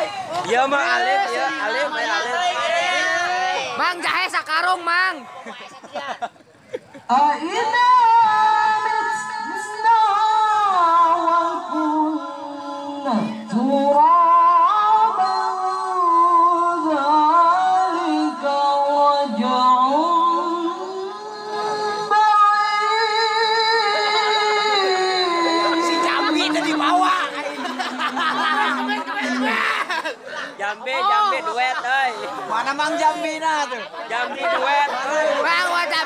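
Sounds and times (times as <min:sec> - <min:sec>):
man reciting melodically into microphone: 0:24.0 - 0:29.6.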